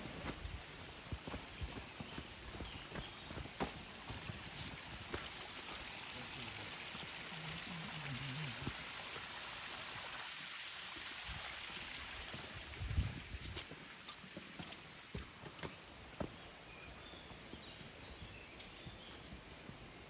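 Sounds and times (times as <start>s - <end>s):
footsteps on muddy trail: 0.0s - 6.2s, 11.7s - 20.0s
stream rushing: 0.0s - 16.7s.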